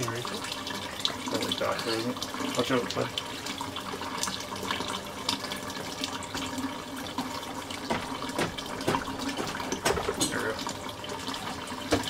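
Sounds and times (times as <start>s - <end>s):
water splashing into a plastic tub: 7.2s - 12.0s.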